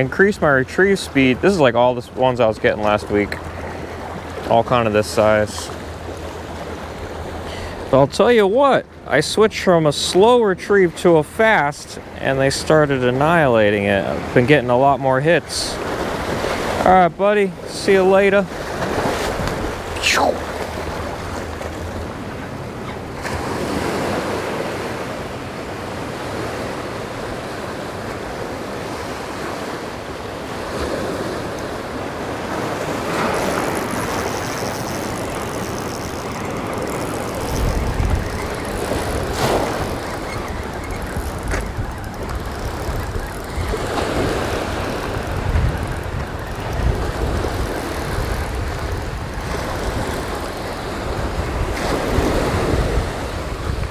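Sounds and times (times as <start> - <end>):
ocean surf breaking on rocks: 0.0 - 53.9
wind rumble on microphone: 30.5 - 53.9.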